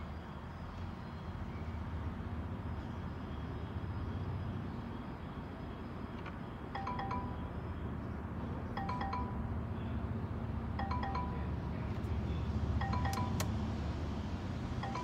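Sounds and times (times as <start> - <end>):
three-note dashboard warning chime: 10.8 - 11.7, 12.8 - 13.5.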